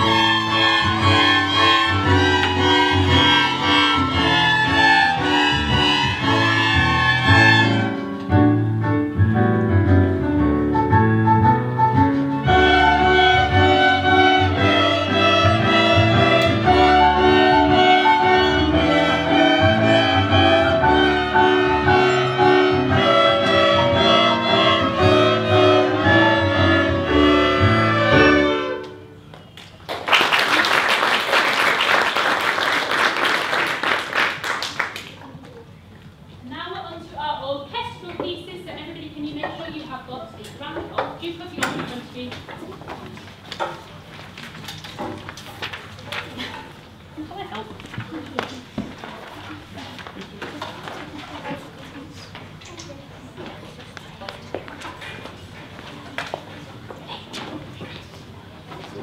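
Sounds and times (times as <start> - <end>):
string ensemble playing: 0.0 - 29.2
audience applauding: 29.6 - 35.2.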